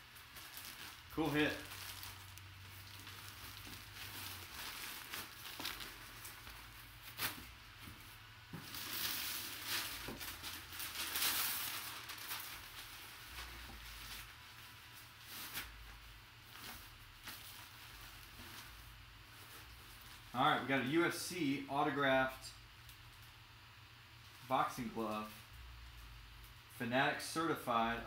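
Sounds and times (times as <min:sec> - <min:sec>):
plastic bag and paper rustling: 0:00.0 - 0:20.3.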